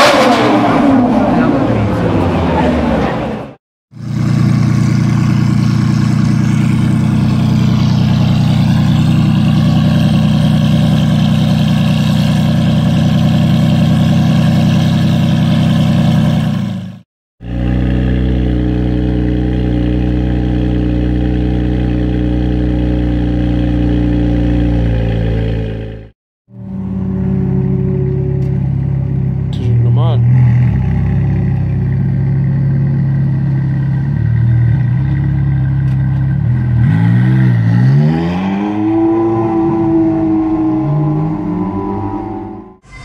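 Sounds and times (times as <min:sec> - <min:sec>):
sports car engine running: 0:04.0 - 0:38.0.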